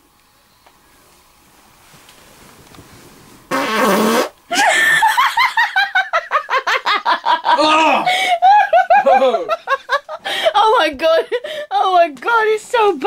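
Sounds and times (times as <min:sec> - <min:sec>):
person farting: 0:03.5 - 0:04.4
hard rapid laughter: 0:04.5 - 0:10.3.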